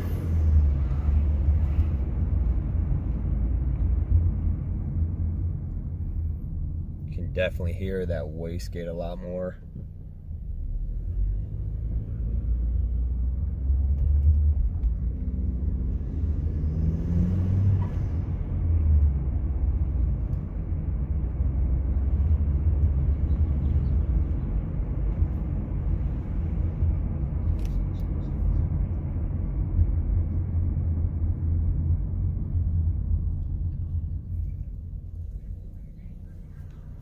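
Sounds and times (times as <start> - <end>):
engine revving: 0.0 - 4.5, 10.6 - 28.2
car engine rumble: 0.0 - 37.0.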